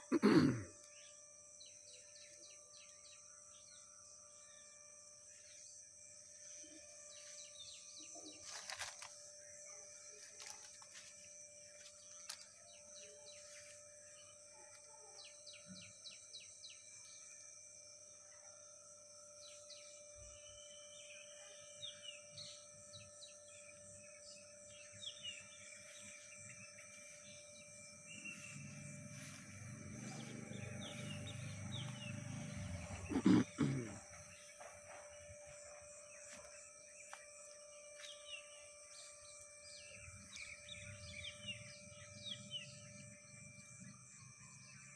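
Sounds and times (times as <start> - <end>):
high-pitched drone: 0.0 - 44.9
birds chirping: 19.7 - 44.8.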